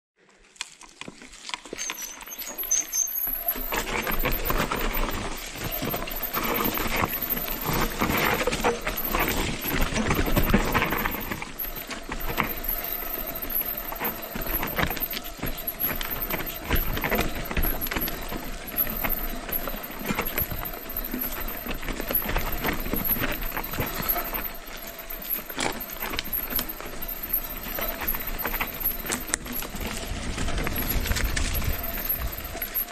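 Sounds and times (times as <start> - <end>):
bike tyres crunching on dirt: 0.2 - 32.9
bike rattling over bumps: 0.7 - 32.9.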